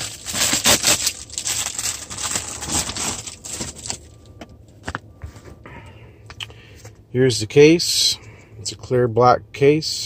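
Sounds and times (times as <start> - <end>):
packaging crinkling: 0.0 - 4.3.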